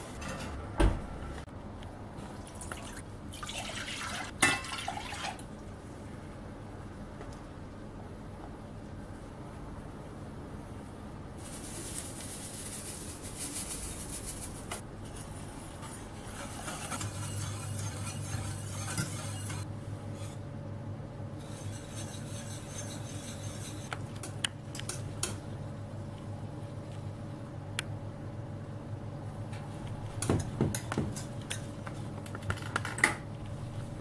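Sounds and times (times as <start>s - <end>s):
whisk scraping steel pot: 15.0s - 20.4s, 21.4s - 25.0s.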